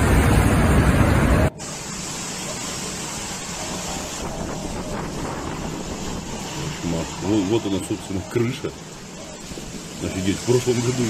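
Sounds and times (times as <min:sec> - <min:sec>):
steady wind hiss: 0:00.0 - 0:11.0
wind buffeting microphone: 0:03.4 - 0:11.0.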